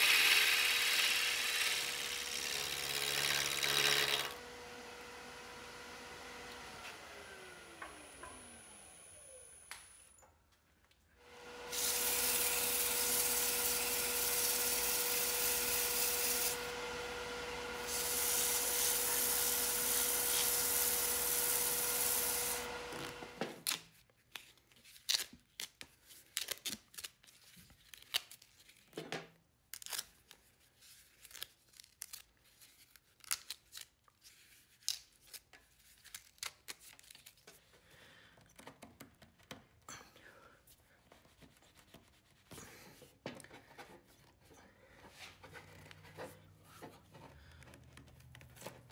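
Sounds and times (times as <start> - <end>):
lathe motor whine: 0.1 - 9.8, 11.3 - 23.4
sandpaper hissing on spinning wood: 17.8 - 22.8.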